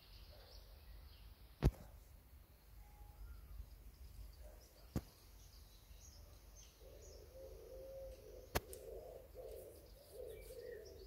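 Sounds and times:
small birds chirping: 0:00.0 - 0:11.0
pigeon cooing: 0:06.8 - 0:11.0.

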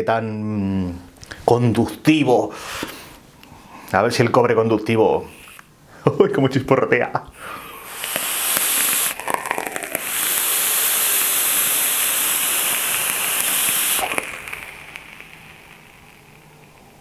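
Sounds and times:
vape coil crackling: 0:07.4 - 0:17.0.

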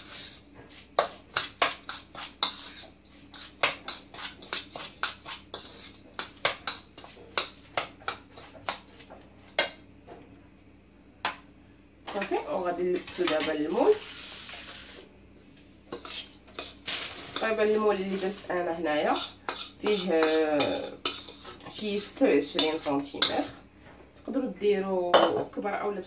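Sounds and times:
spoon scraping a mixing bowl: 0:00.0 - 0:09.7, 0:15.9 - 0:23.6.

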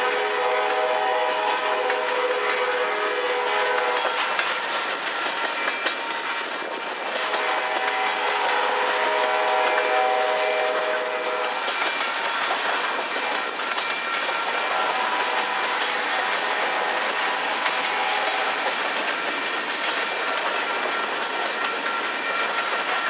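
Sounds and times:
locomotive horn blast: 0:00.0 - 0:04.0, 0:07.3 - 0:11.6
train wheels clacking on rails: 0:00.0 - 0:23.0.

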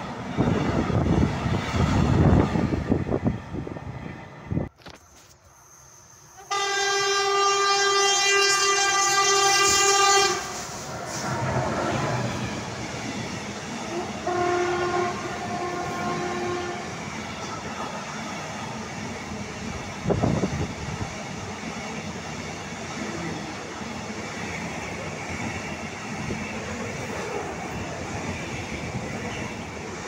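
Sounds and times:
train rumble and wheel clatter: 0:00.0 - 0:30.0
locomotive horn blasts: 0:06.4 - 0:10.6, 0:14.0 - 0:16.9.

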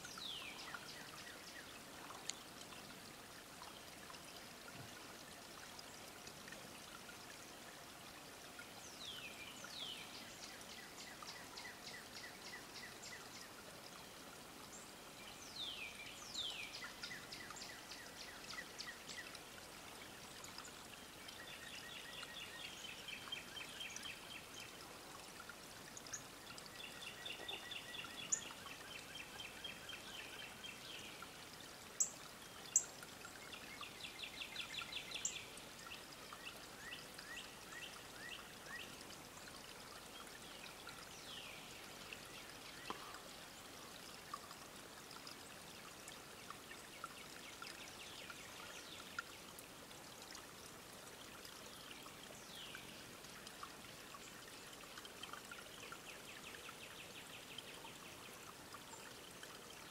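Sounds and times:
songbirds singing: 0:00.0 - 0:02.9, 0:08.6 - 0:25.2, 0:25.9 - 0:31.4, 0:32.0 - 0:39.1.

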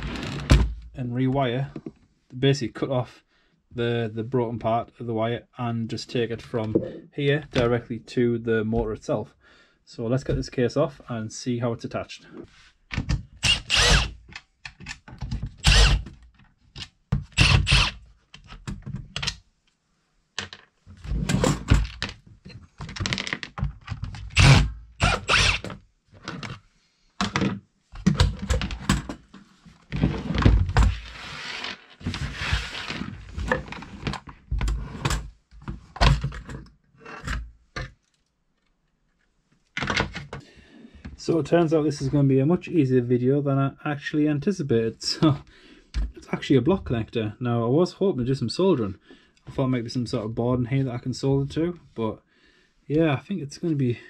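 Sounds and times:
plastic parts knocking and clattering: 0:12.9 - 0:19.4, 0:20.4 - 0:24.6, 0:27.2 - 0:31.0, 0:33.4 - 0:38.3, 0:39.7 - 0:40.4
drill-driver backing out screws: 0:13.4 - 0:14.1, 0:17.4 - 0:18.0, 0:24.4 - 0:25.7.

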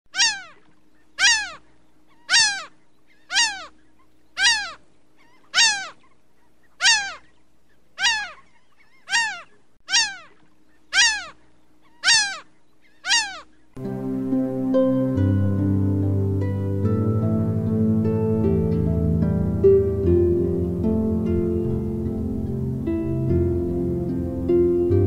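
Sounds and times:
animal cry sliding down in pitch: 0:00.2 - 0:00.6, 0:01.2 - 0:01.6, 0:02.3 - 0:02.7, 0:03.3 - 0:03.7, 0:05.5 - 0:06.0, 0:06.8 - 0:07.2, 0:08.0 - 0:08.4, 0:09.1 - 0:10.4, 0:11.0 - 0:11.4, 0:12.0 - 0:12.4, 0:13.0 - 0:13.4.

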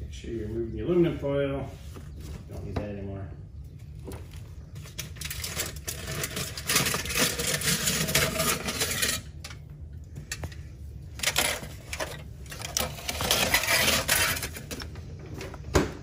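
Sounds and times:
aluminum foil crinkling: 0:04.8 - 0:09.3.

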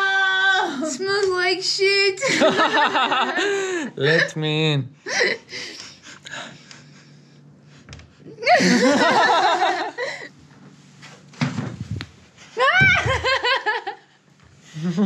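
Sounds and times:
woman squealing with laughter: 0:12.6 - 0:13.8.

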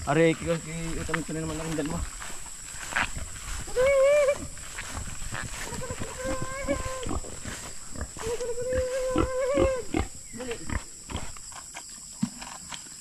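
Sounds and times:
footsteps through grass and soil: 0:00.0 - 0:13.0
pig squealing: 0:05.6 - 0:07.2, 0:08.0 - 0:10.8.

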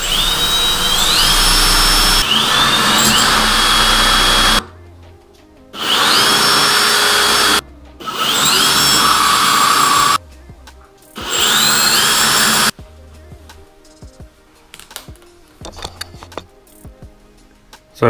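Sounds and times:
cordless drill drilling into tile: 0:00.0 - 0:04.6, 0:05.8 - 0:10.2, 0:11.2 - 0:12.7.

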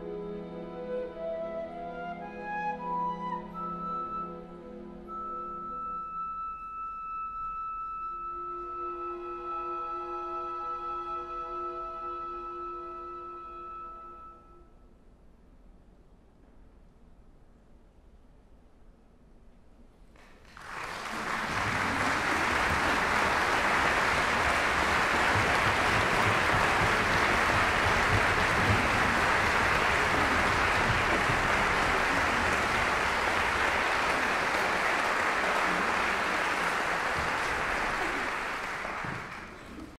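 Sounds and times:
audience applause: 0:20.3 - 0:40.0.

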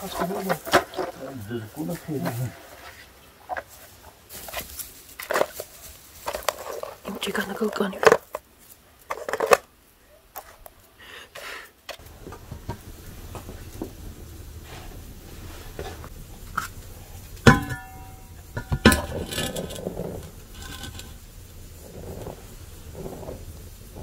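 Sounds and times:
flour pouring hiss: 0:11.5 - 0:24.0.

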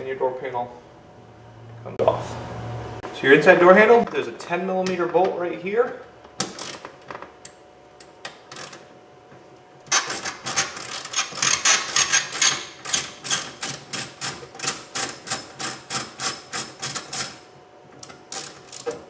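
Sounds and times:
ratchet clicking: 0:09.9 - 0:17.4, 0:18.0 - 0:19.0.

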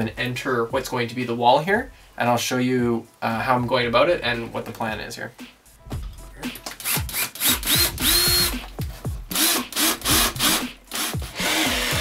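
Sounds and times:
cordless drill boring into wood: 0:06.8 - 0:08.5, 0:09.3 - 0:12.0.

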